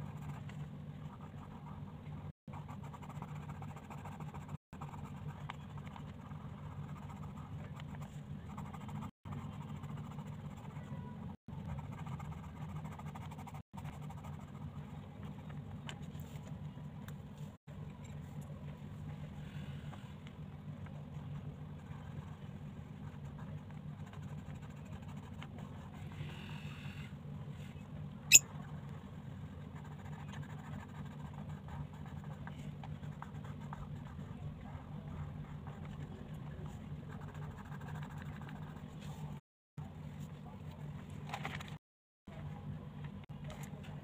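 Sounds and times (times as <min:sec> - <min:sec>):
pencil scratching on paper: 0:00.0 - 0:15.0, 0:21.2 - 0:26.4, 0:29.6 - 0:39.4
steady low hum: 0:00.0 - 0:41.6.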